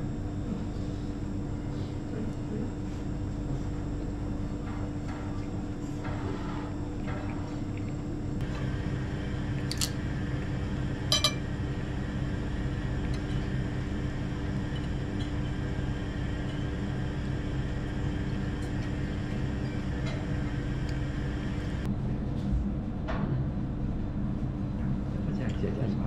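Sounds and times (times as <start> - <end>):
low room hum: 0.0 - 26.0
tableware clinking: 11.1 - 11.4.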